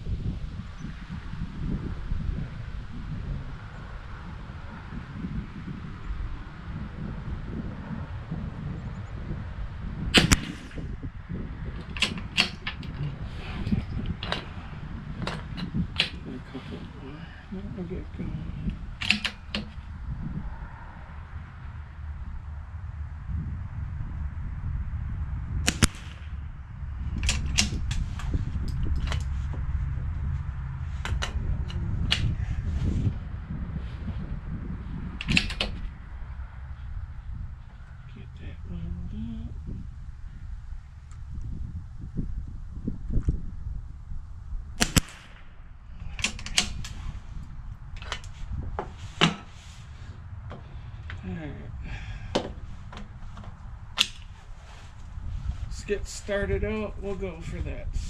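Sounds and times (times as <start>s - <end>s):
rifle shot: 10.1s - 10.8s, 25.6s - 26.4s, 44.8s - 45.6s
metallic bolt clicks: 11.8s - 14.6s, 15.2s - 16.3s, 19.0s - 19.8s, 27.2s - 29.4s, 31.0s - 32.3s, 35.2s - 35.9s, 46.2s - 47.0s, 48.0s - 48.4s, 54.0s - 54.3s.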